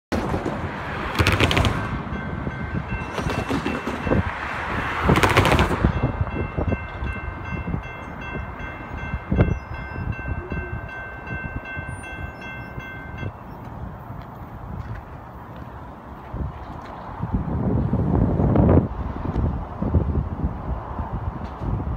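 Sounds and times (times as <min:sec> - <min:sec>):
wind noise rushes: 0:00.1 - 0:21.9
railroad crossing bell ringing: 0:01.8 - 0:05.2, 0:05.8 - 0:14.6.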